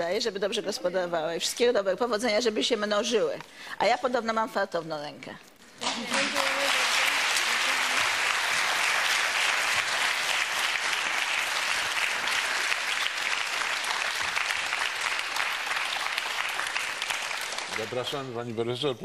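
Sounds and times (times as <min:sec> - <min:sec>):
audience applauding: 0:05.8 - 0:18.4.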